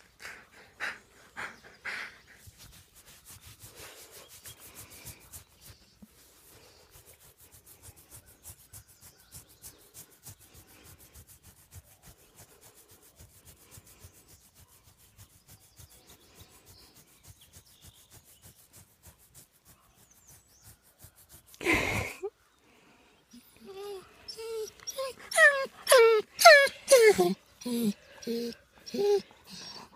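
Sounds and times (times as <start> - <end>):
hand scratching dog fur: 2.4 - 21.8, 23.6 - 29.9.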